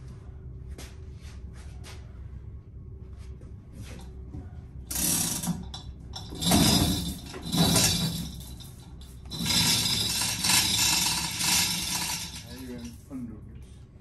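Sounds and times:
chain rattling through hoist: 4.9 - 13.0.

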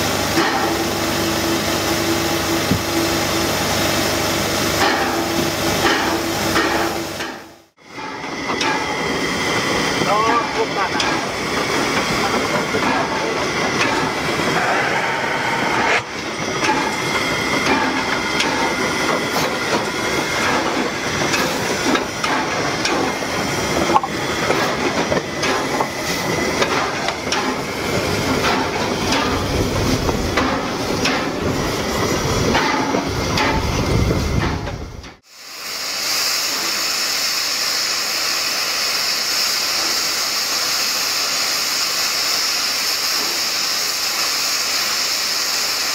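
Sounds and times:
steam hissing: 0.0 - 34.4, 35.2 - 45.9
high hiss of escaping steam: 8.1 - 32.5, 35.2 - 45.9
metal clanks and knocks: 23.9 - 26.0.

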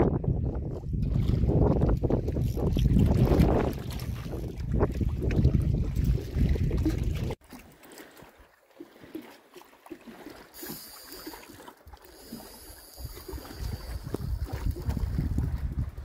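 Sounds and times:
wind buffeting microphone: 0.0 - 7.4, 13.0 - 16.0
water splashing and trickling: 0.2 - 16.0.

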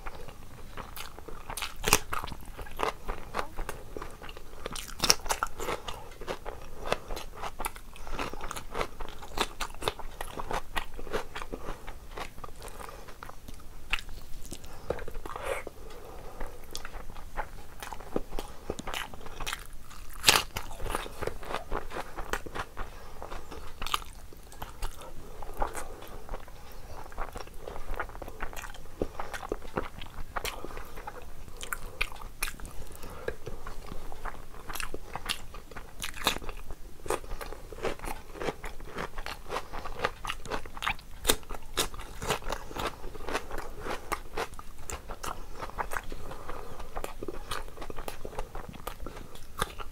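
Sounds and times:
chewing and lip smacking: 0.0 - 49.9.

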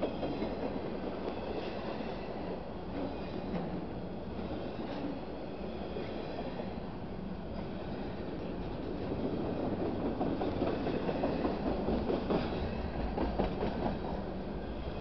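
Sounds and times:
steel wheels rumbling on rail: 0.0 - 15.0
wheels clacking over rail joints: 7.6 - 15.0.

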